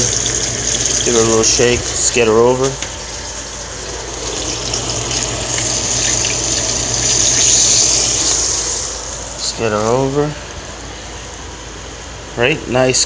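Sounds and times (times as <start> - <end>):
fish sizzling in hot oil: 0.0 - 2.0, 2.6 - 9.5.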